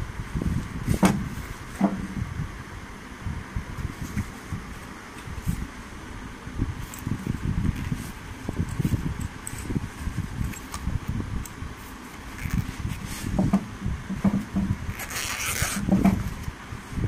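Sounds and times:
rumbling handling noise: 0:00.0 - 0:17.0
backpack rustling and scraping: 0:06.8 - 0:10.9, 0:11.8 - 0:16.5.

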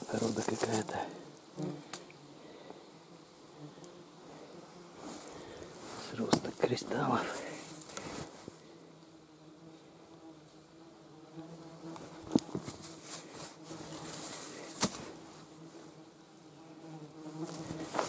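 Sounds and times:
insect buzzing: 0:00.0 - 0:18.0.

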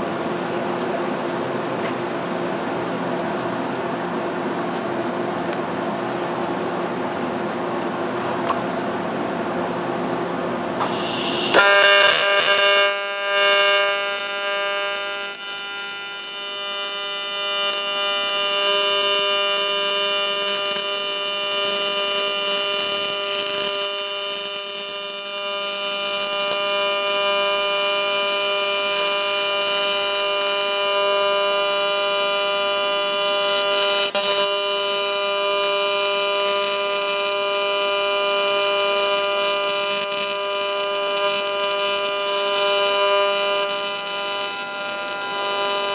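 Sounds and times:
welding arc buzzing: 0:10.8 - 0:45.9.

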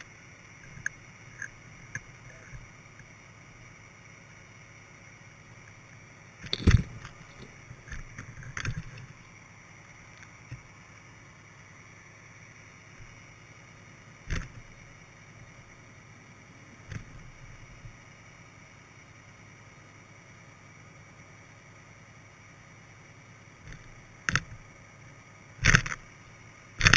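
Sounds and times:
steady hiss: 0:00.0 - 0:26.9.

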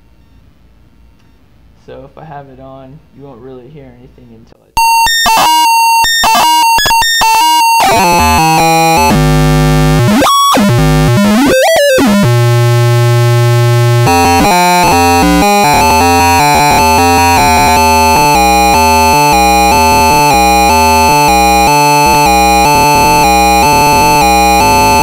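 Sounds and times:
stepped electronic beeps: 0:04.8 - 0:25.0
buzzing synth drone swooping: 0:07.4 - 0:25.0.

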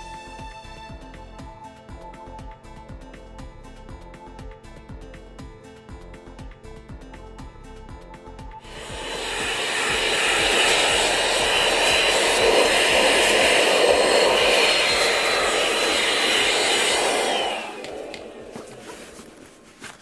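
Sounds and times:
vacuum motor winding down: 0:08.6 - 0:18.8
handheld vacuum cleaner running: 0:08.6 - 0:19.5.

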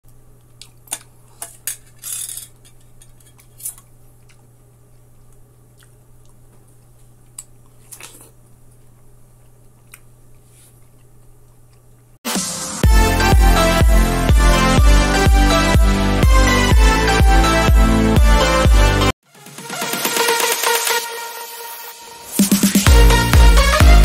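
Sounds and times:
loud electronic music: 0:12.3 - 0:24.0.

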